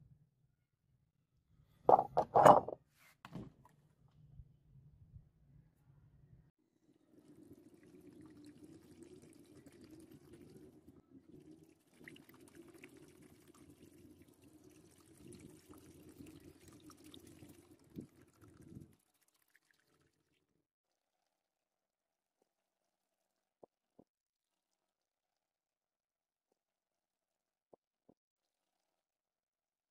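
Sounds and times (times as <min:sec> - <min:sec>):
liquid pouring into plastic trough: 0:07.0 - 0:20.5.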